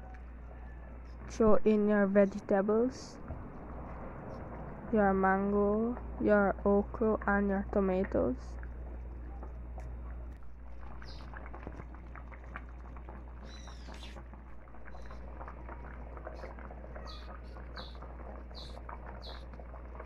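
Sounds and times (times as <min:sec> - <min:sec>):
low hum: 0:00.0 - 0:20.0
curry bubbling in a pot: 0:05.8 - 0:20.0.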